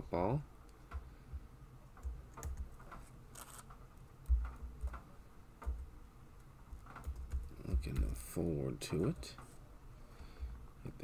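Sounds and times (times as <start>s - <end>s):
computer keyboard taps: 4.2s - 5.9s, 6.8s - 8.2s.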